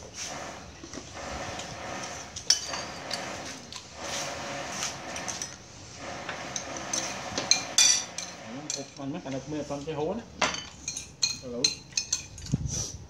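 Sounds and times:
spoons clinking on ceramic bowls: 0:10.4 - 0:12.5.

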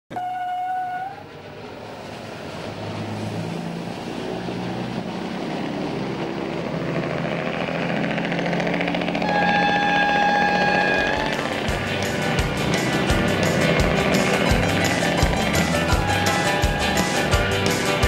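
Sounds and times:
held horn tone: 0:00.1 - 0:01.3, 0:09.2 - 0:18.0
diesel engine running: 0:01.0 - 0:18.0.

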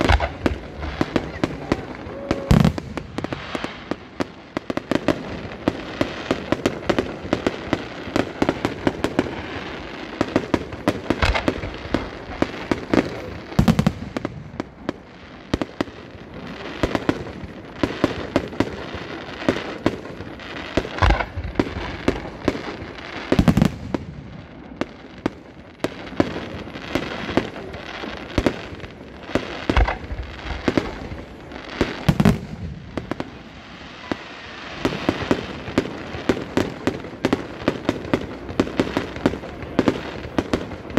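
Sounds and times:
deep firework booms: 0:00.0 - 0:04.0, 0:29.6 - 0:33.5
fireworks bangs and crackles: 0:00.0 - 0:40.9.

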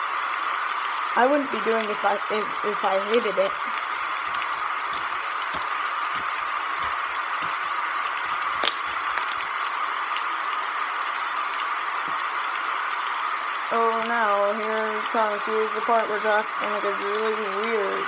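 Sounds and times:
slime squelching in hands: 0:03.1 - 0:09.6.

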